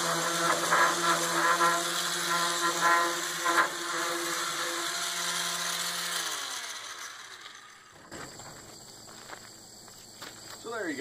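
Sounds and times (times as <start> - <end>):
motor winding down: 0.0 - 8.1
sander motor humming: 0.0 - 8.1
sander scraping: 0.0 - 10.6.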